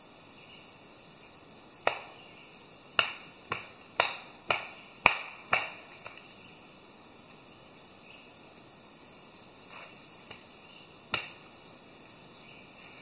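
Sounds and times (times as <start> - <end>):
hatchet chopping log: 1.8 - 2.1, 3.0 - 6.2, 11.1 - 11.4.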